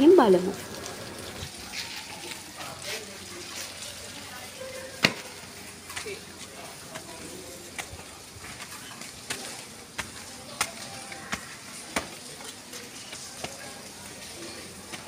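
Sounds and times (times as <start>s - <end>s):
sandals slapping on concrete steps: 5.0s - 15.0s.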